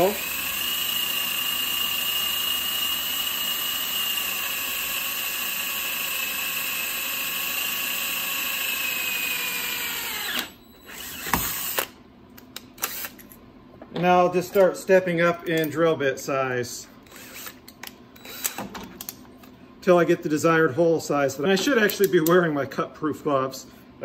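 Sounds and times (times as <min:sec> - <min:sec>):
cordless drill whining: 0:00.0 - 0:12.0, 0:12.8 - 0:13.2, 0:17.0 - 0:17.6, 0:18.2 - 0:18.7.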